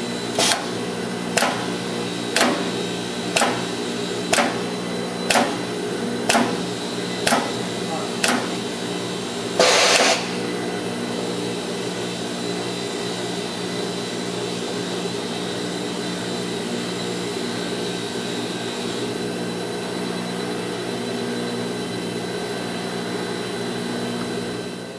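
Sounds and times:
compressed air hiss: 0:09.6 - 0:10.4
robot machine hum: 0:09.6 - 0:10.5.

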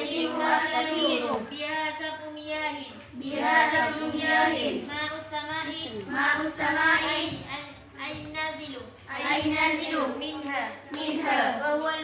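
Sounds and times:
girls chanting in unison: 0:00.0 - 0:01.5, 0:03.2 - 0:04.9, 0:06.0 - 0:07.5, 0:09.1 - 0:11.6.

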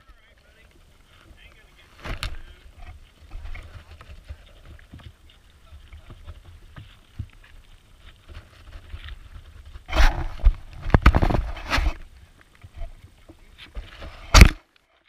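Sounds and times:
wind rumble on microphone: 0:02.1 - 0:13.0
scraping knocks on microphone: 0:08.3 - 0:12.1.

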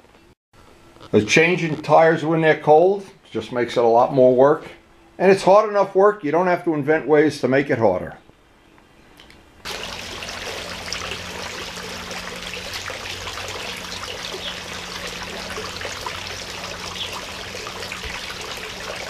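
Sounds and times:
water trickling into pond: 0:09.6 - 0:19.0.

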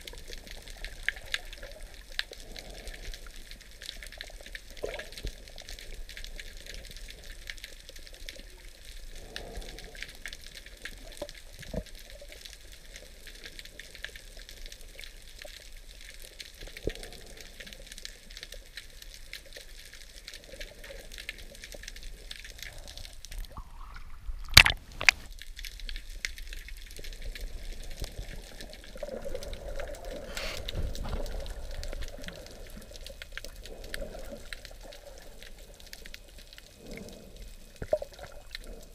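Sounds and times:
faint crackling hiss underwater: 0:00.0 - 0:38.9
rush of water: 0:22.7 - 0:25.3.

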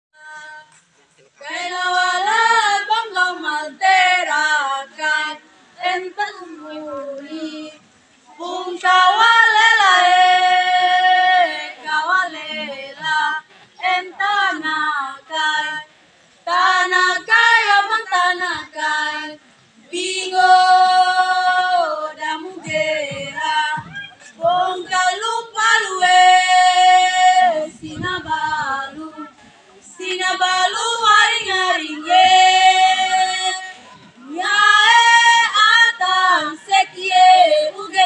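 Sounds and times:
women singing unaccompanied: 0:00.2 - 0:00.8, 0:01.4 - 0:38.0.

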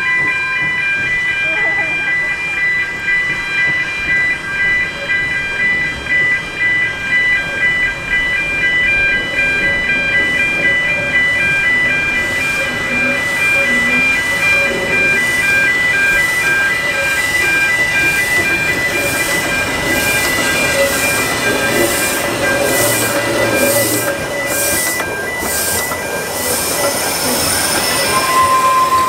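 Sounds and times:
level crossing alarm tones: 0:00.0 - 0:29.0
steam locomotive creeping: 0:00.0 - 0:29.0.

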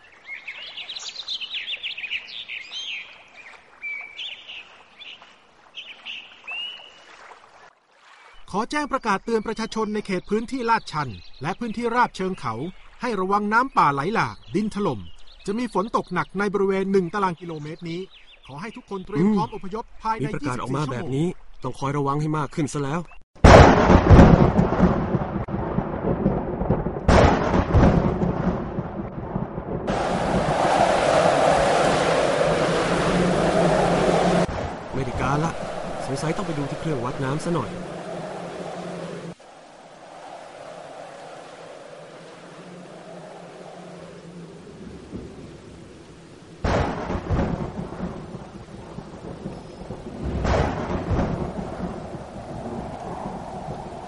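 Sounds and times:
heavy rain: 0:23.4 - 0:54.0
thunderclaps: 0:23.4 - 0:54.0.

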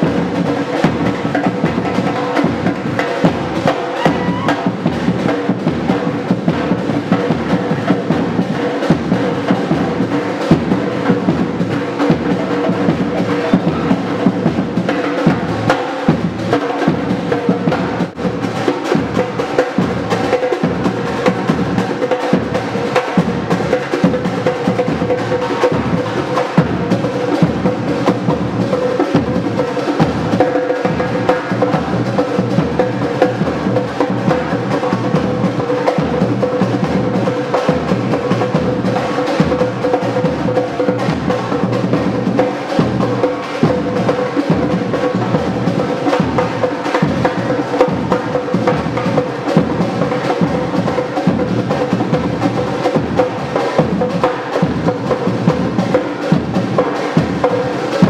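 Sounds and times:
samba drumming: 0:00.0 - 0:58.0.

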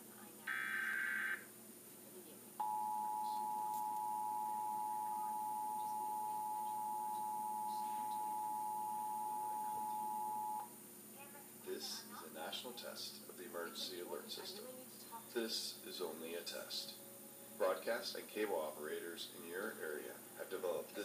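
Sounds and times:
data burst buzzing screech: 0:00.5 - 0:01.4
two-tone alert signal: 0:00.5 - 0:01.4.

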